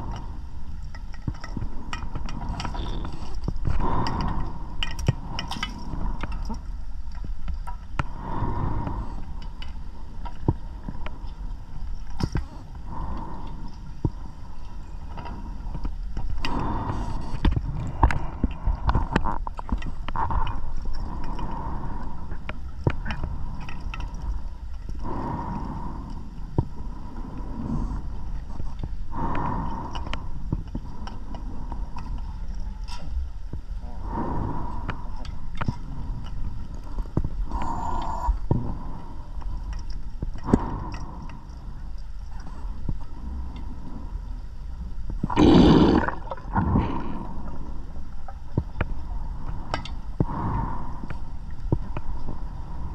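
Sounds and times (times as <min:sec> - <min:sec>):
low rumble of water: 0:00.0 - 0:52.9
diver breathing underwater: 0:01.4 - 0:06.8, 0:08.0 - 0:19.5, 0:20.1 - 0:32.5, 0:33.8 - 0:52.9
bubbles gurgling: 0:45.3 - 0:47.1.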